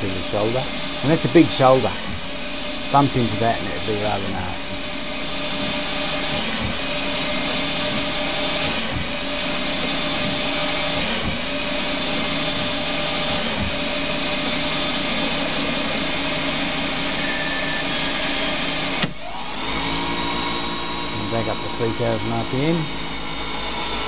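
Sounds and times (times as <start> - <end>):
lathe cutting thread in steel: 0.0 - 24.0.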